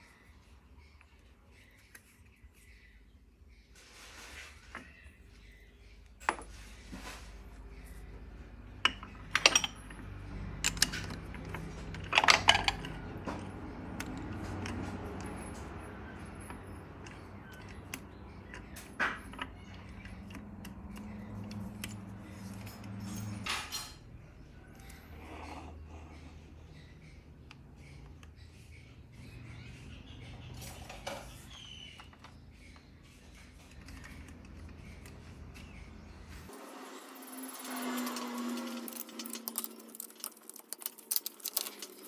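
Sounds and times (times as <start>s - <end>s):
metal clinks and knocks: 8.8s - 24.2s, 37.1s - 42.0s.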